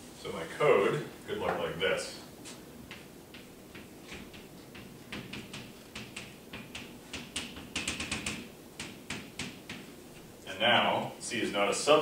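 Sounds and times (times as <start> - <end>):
chalk tapping on blackboard: 2.5 - 10.3.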